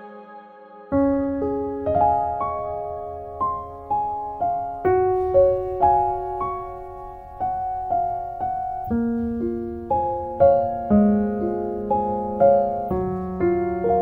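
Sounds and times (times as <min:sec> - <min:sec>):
slow piano melody: 0:00.0 - 0:14.0.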